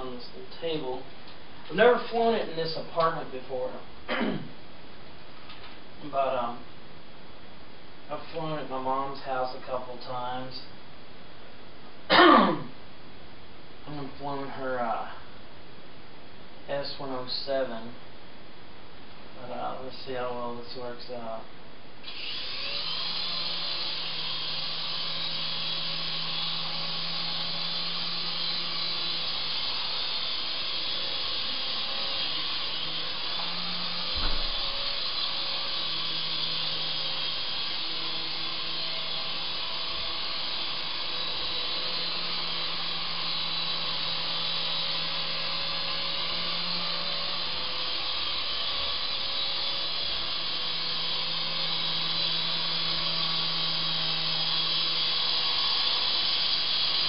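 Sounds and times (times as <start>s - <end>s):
toy helicopter motor and rotors whining: 22.0s - 57.0s
sharp knock: 34.2s - 34.5s.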